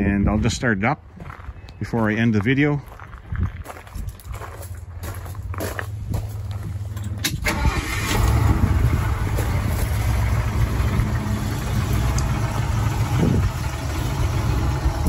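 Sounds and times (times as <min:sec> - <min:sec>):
car engine starting and idling: 0:06.7 - 0:15.0.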